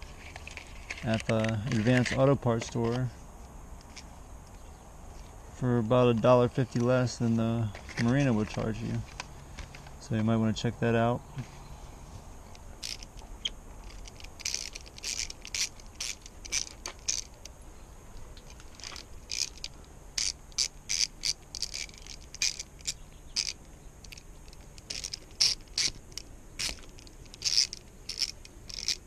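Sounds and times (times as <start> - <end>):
ratchet clicking: 12.5 - 17.6, 18.4 - 29.0.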